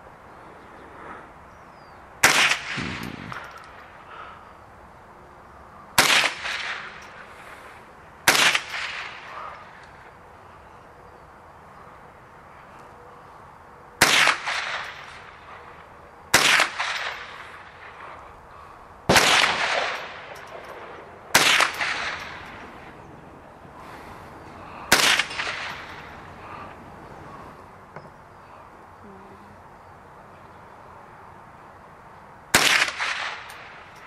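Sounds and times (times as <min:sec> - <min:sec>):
rifle shots with echo: 0:02.2 - 0:03.6, 0:06.0 - 0:07.1, 0:08.3 - 0:09.4, 0:14.0 - 0:15.4, 0:16.3 - 0:18.1, 0:19.1 - 0:22.8, 0:24.9 - 0:26.1, 0:32.5 - 0:33.8.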